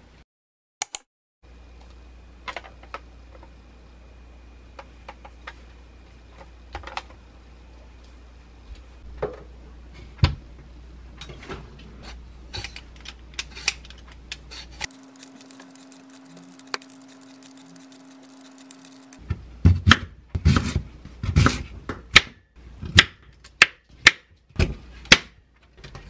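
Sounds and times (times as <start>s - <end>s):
vegetable peeler scraping: 14.5s - 19.2s.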